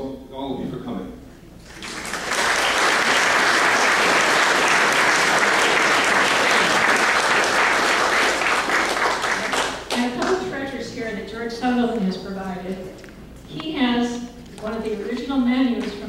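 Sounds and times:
audience clapping: 1.6s - 10.4s.

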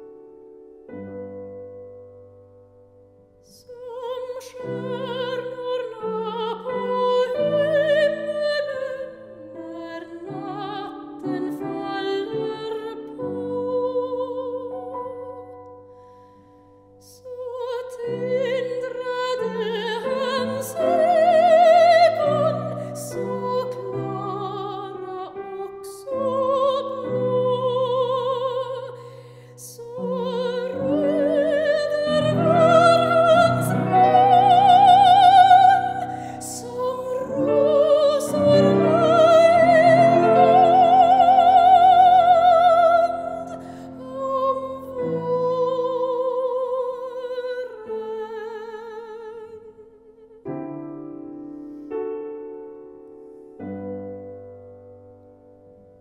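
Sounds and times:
grand piano: 0.0s - 56.0s
soprano singing with vibrato: 3.4s - 15.6s, 17.0s - 50.7s.

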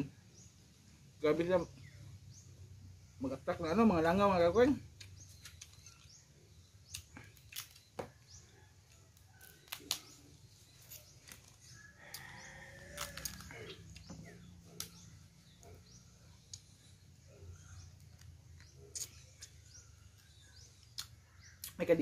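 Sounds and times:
crab shells cracking by hand: 6.8s - 8.3s, 8.9s - 10.2s, 12.9s - 14.1s.

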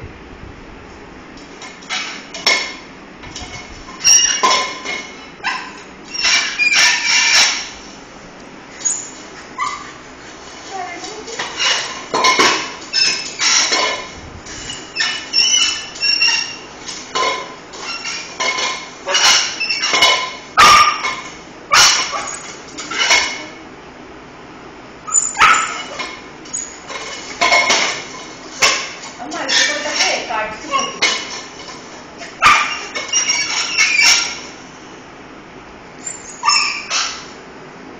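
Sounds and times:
dog barking: 20.6s - 22.4s, 25.3s - 26.0s, 32.4s - 33.0s.

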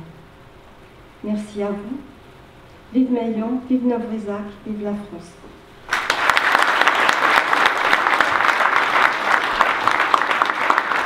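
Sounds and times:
crowd applauding: 5.9s - 11.0s.

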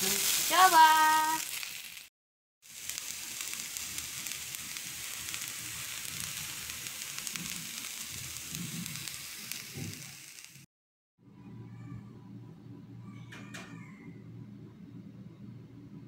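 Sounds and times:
rice sizzling in a wok: 0.0s - 10.7s.

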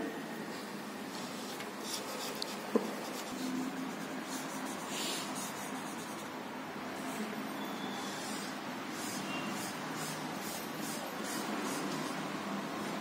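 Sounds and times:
marker scratching on paper: 1.4s - 6.4s, 8.1s - 12.3s.

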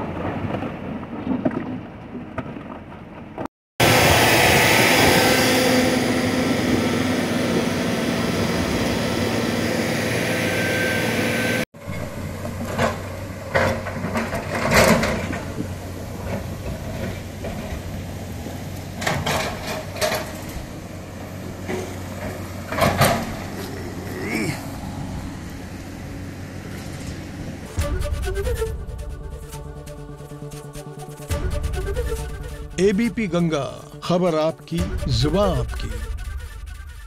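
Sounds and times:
excavator engine hum: 0.0s - 37.0s
rock knocks and clatters: 0.1s - 3.5s
wheel loader diesel engine: 1.8s - 37.0s.

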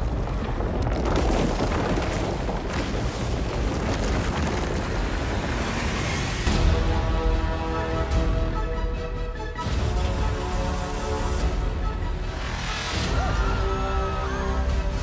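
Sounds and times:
earthquake rumble: 0.0s - 7.7s.

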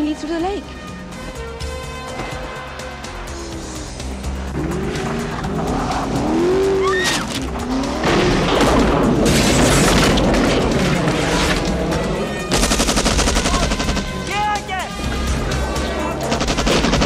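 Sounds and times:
film score: 0.0s - 17.0s
sports car engine revving: 0.7s - 12.5s
skidding noise: 4.4s - 12.5s
rapid machine-gun fire: 12.5s - 14.2s, 16.3s - 17.0s.

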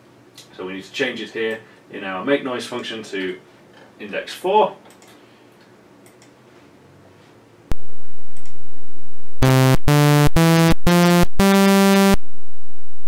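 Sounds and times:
buzzy synthesizer notes: 9.4s - 12.2s.

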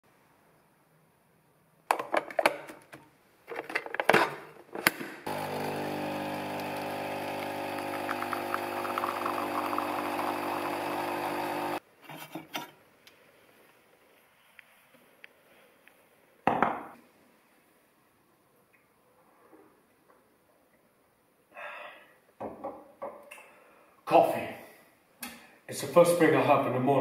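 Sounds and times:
coffee machine pump hum: 5.3s - 11.8s
coffee spluttering into cup: 5.3s - 11.8s.

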